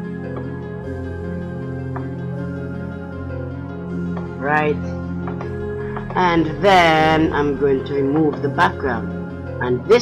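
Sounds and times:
background music with held chords: 0.0s - 10.0s.

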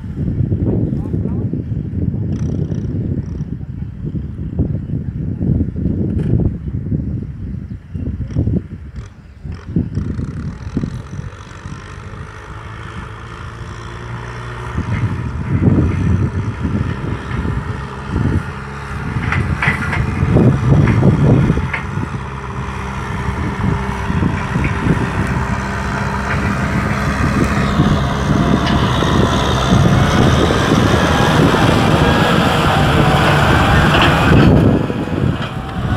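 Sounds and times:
tractor diesel engine under load: 8.4s - 35.9s.

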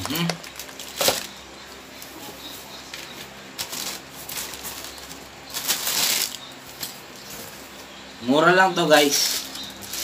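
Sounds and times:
plastic and paper rustling: 0.0s - 1.4s, 2.0s - 7.6s, 9.0s - 10.0s.

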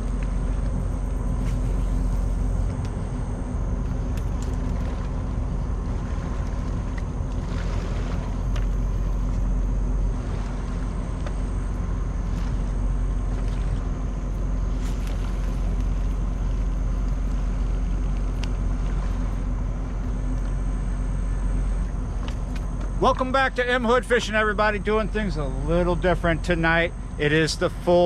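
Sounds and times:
ship engines droning: 0.0s - 28.0s
faint clicks: 18.0s - 19.0s.

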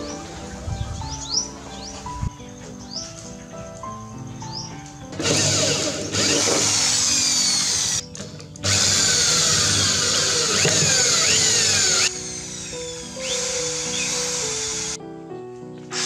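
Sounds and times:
electric drill boring through plastic: 5.2s - 15.0s.

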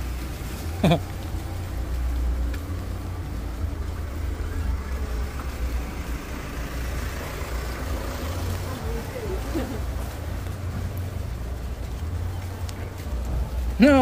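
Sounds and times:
constant low rumble: 0.0s - 14.0s
rain falling on wet street: 0.0s - 14.0s.

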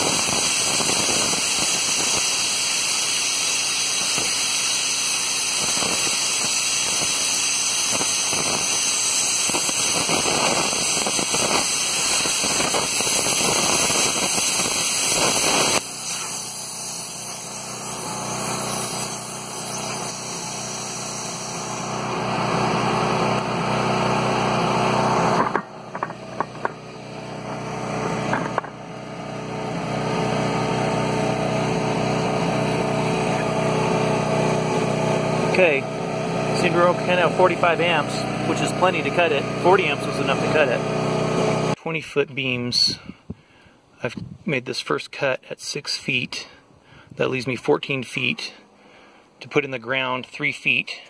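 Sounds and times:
plasma cutter hissing and crackling: 0.0s - 23.5s, 36.5s - 40.8s
portable generator running: 0.0s - 41.8s.

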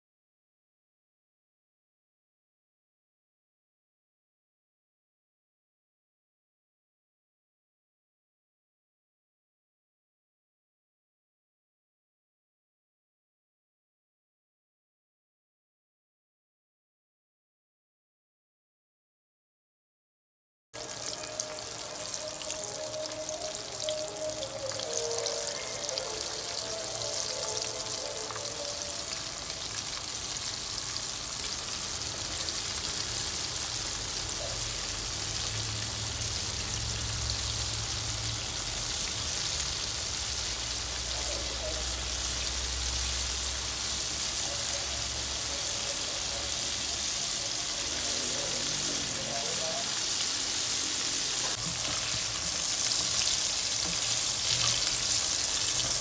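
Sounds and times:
soft background music: 20.8s - 30.2s
hot oil sizzling: 20.8s - 56.0s.

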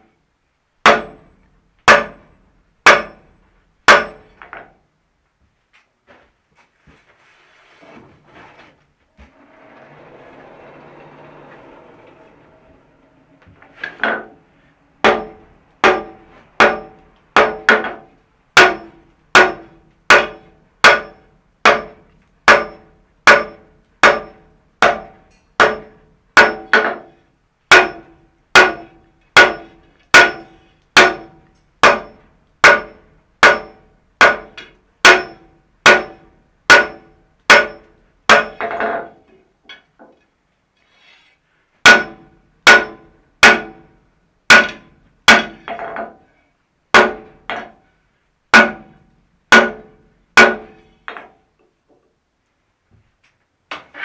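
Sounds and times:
hammer striking metal on anvil: 0.8s - 4.7s, 15.0s - 39.9s, 41.8s - 43.9s, 44.5s - 46.2s, 46.9s - 47.8s, 48.5s - 51.3s.

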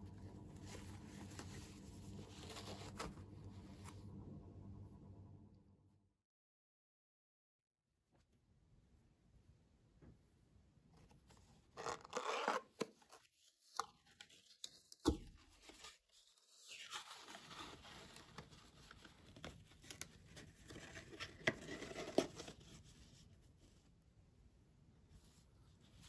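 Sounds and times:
cardboard rustling: 0.5s - 3.4s, 14.2s - 23.3s.

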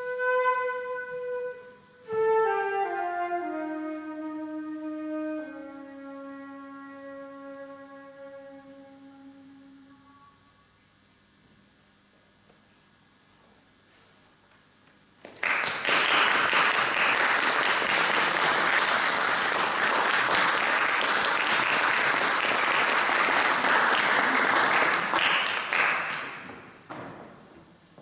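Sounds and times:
audience applauding: 15.2s - 26.8s.

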